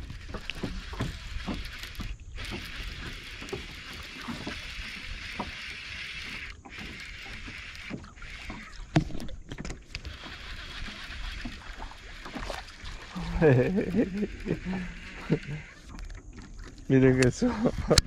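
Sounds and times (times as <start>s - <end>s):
water rushing along hull: 0.0s - 18.0s.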